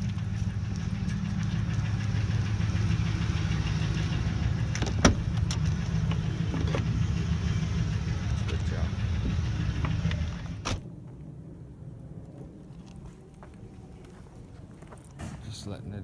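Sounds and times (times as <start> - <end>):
truck engine idling: 0.0 - 10.7.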